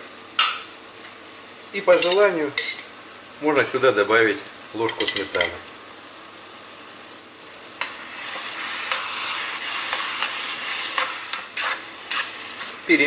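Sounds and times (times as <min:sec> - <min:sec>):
vegetables sizzling in a frying pan: 0:00.0 - 0:13.0
spoon stirring and scraping pan: 0:07.8 - 0:13.0.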